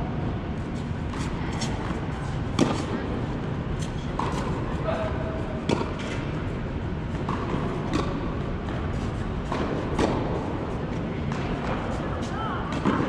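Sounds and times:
low background noise: 0.0 - 13.0
racket hitting ball: 1.1 - 3.2, 3.8 - 5.0, 5.6 - 6.5, 7.1 - 13.0
ball bounces: 7.1 - 8.8.

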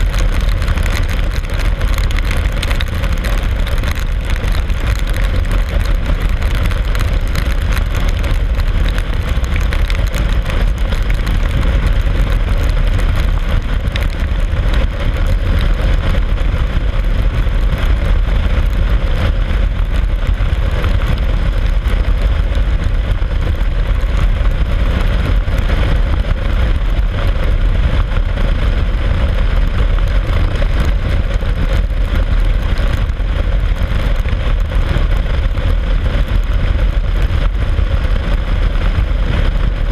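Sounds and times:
wind rumble on microphone: 0.0 - 39.9.

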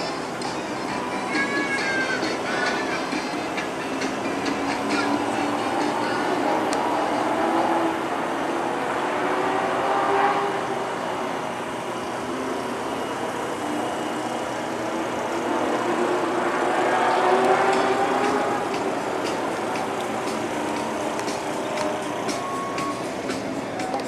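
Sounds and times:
vehicle engines running: 0.0 - 24.0.

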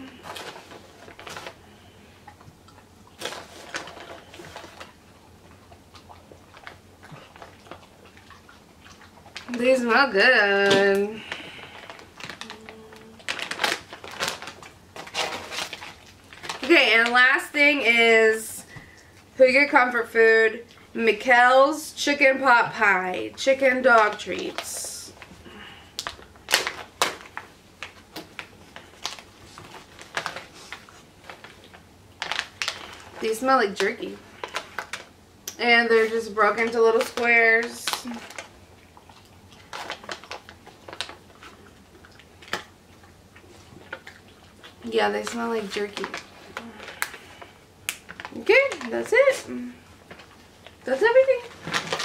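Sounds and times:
dogs crunching treats: 0.0 - 10.0, 10.6 - 17.9, 23.4 - 52.0
plastic pouch crinkling: 0.1 - 1.9, 3.2 - 5.0, 11.2 - 17.4, 24.0 - 35.1, 36.5 - 52.0.

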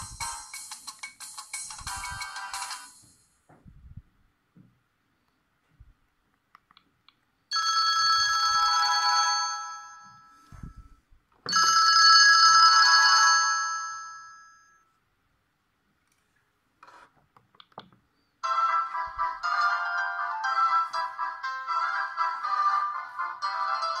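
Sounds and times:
bright chime-like ringtone chords: 0.0 - 3.2, 7.5 - 10.7, 18.4 - 24.0.

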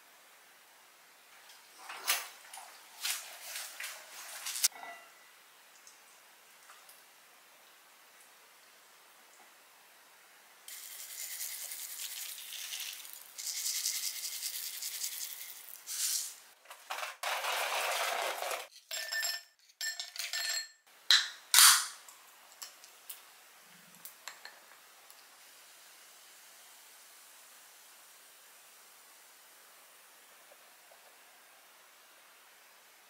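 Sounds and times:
soda fizzing: 10.7 - 16.5.

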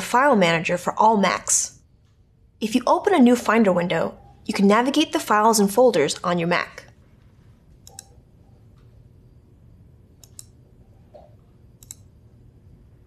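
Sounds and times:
faint low room hum: 0.0 - 13.0
computer mouse clicking: 7.8 - 8.9, 10.2 - 10.6, 11.2 - 12.2.

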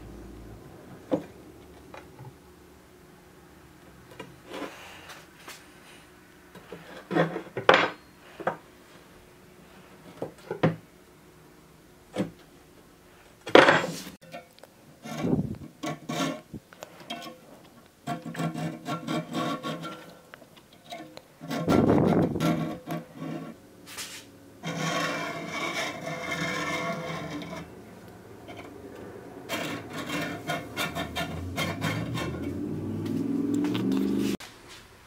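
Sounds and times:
sword blade scraping: 21.5 - 27.7, 29.5 - 32.6.

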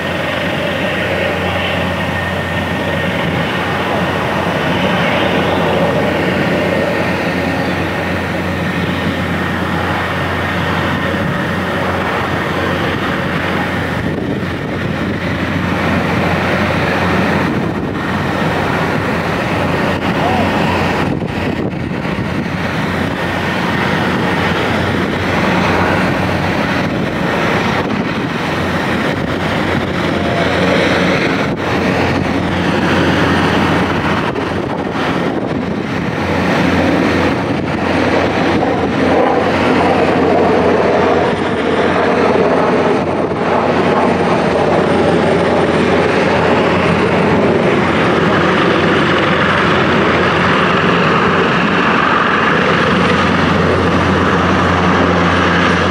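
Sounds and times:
helicopter turbines and rotor: 0.0 - 55.9.

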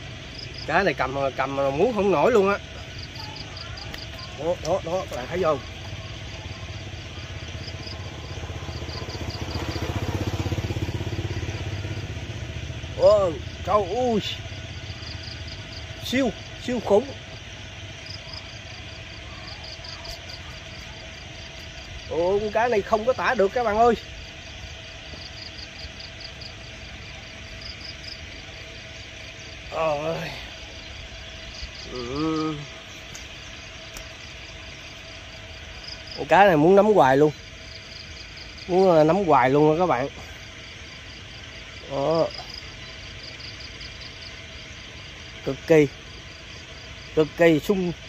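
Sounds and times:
faint hum and low rumble: 0.0 - 48.0
insect chirping: 0.0 - 48.0
small engine puttering: 1.8 - 29.1.

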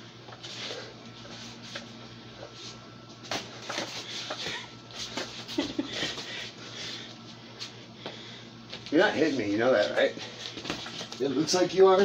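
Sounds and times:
shuffling feet: 0.3 - 11.6.

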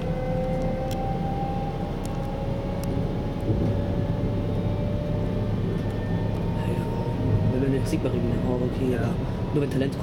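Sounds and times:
faint whining tones: 0.0 - 10.0
train rumble: 0.0 - 10.0.

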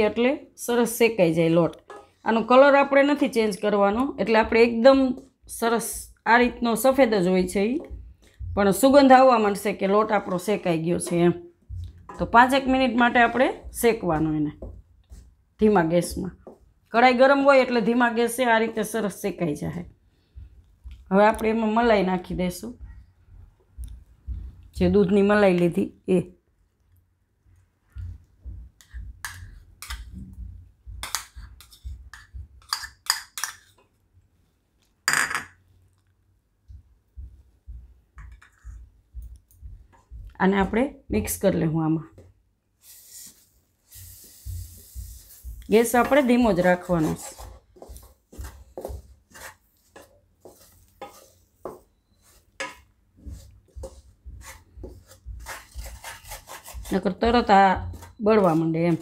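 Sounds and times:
spoon scraping and tapping bowl: 1.7 - 2.2, 28.8 - 30.2, 30.9 - 33.9, 38.2 - 38.8, 45.0 - 59.0.

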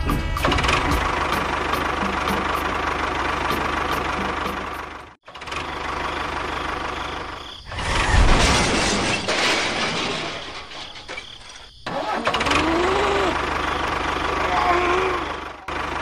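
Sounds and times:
tractor engine knocking: 0.0 - 7.3, 15.1 - 16.0.

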